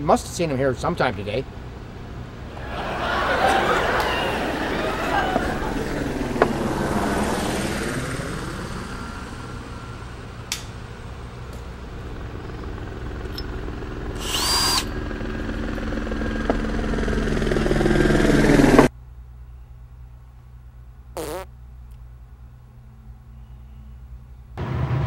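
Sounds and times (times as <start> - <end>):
steady mechanical drone: 0.0 - 25.0
cordless drill whirring: 14.1 - 15.0.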